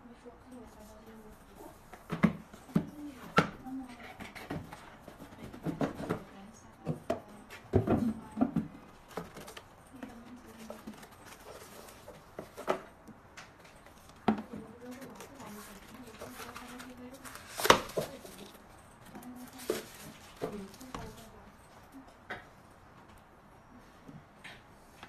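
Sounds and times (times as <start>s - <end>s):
packaging rustling: 8.9s - 12.9s, 14.8s - 21.3s.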